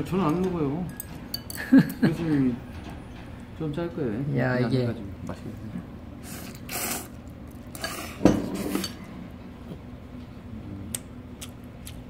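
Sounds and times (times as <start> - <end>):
tableware scraping: 7.8 - 9.1.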